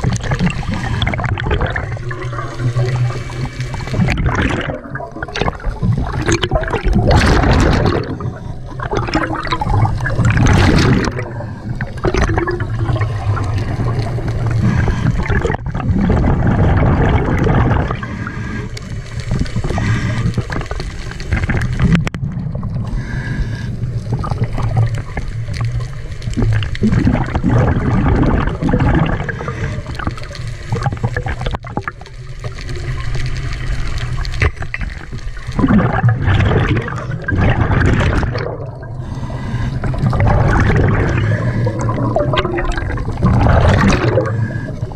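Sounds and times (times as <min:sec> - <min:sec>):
exhaled bubbles gurgling: 0:00.0 - 0:44.9
regulator breathing underwater: 0:10.8 - 0:16.2, 0:17.8 - 0:21.0, 0:22.8 - 0:24.4, 0:29.0 - 0:30.9, 0:38.5 - 0:44.9.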